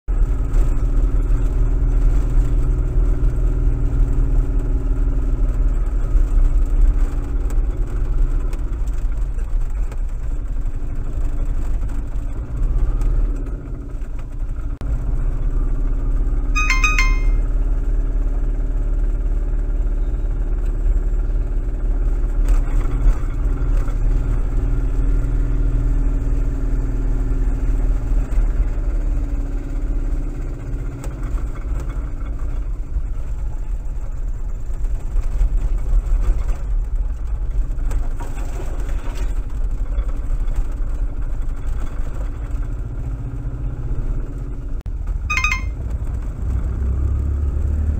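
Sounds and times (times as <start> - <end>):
brief high-pitched squeak: 16.6 - 17.4, 45.3 - 45.8.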